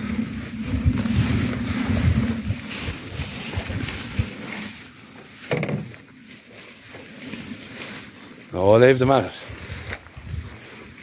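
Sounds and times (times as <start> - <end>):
wind buffeting microphone: 0.0 - 4.5, 9.5 - 11.0.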